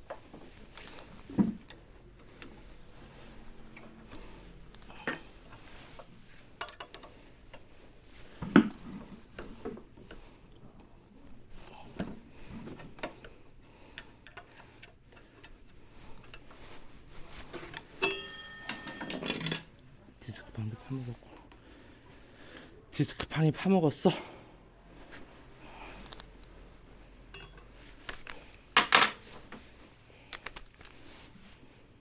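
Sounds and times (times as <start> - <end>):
ringing metal clink: 18.0 - 19.5
wrench clinking on metal: 18.0 - 19.7.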